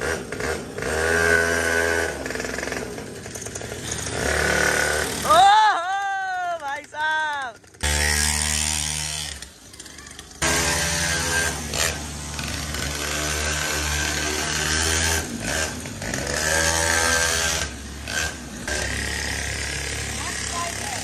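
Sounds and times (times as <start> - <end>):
small motorbike engine revving: 0.0 - 5.6, 7.6 - 21.0.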